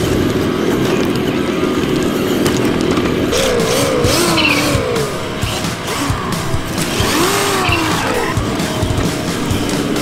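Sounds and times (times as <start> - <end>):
simulated engine revving: 3.2 - 10.0.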